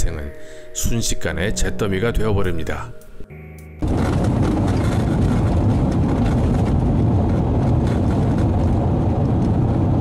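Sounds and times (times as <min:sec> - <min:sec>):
road and engine rumble in cabin: 0:03.8 - 0:10.0.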